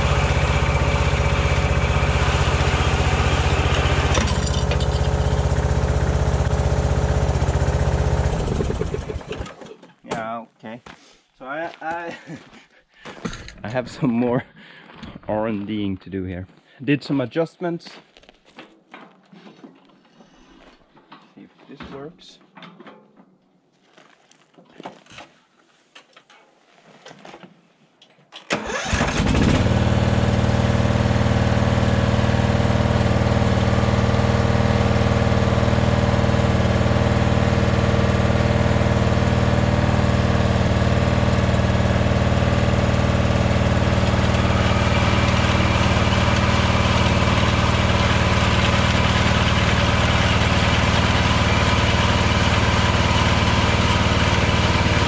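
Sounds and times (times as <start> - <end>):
ride-on mower engine running: 0.0 - 9.7, 28.6 - 55.0.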